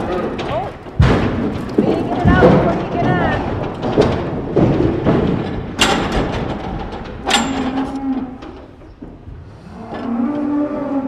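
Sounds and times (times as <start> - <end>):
sharp knocks: 0.0 - 7.9
cows mooing low: 9.5 - 11.0.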